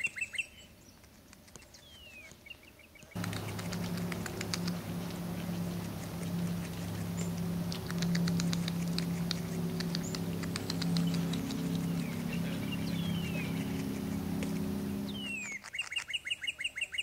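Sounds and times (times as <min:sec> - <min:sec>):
beaver gnawing bark: 0:03.2 - 0:15.4
steady low hum: 0:03.2 - 0:15.4.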